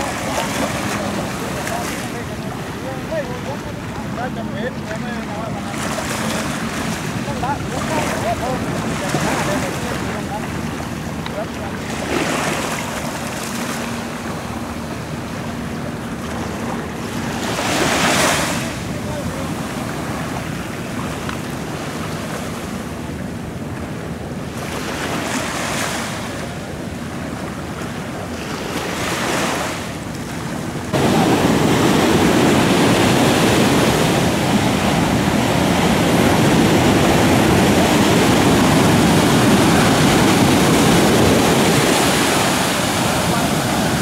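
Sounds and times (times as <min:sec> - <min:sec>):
surf breaking on sandy beach: 0:00.0 - 0:23.3, 0:24.4 - 0:44.0
wind rushing over microphone: 0:29.8 - 0:44.0.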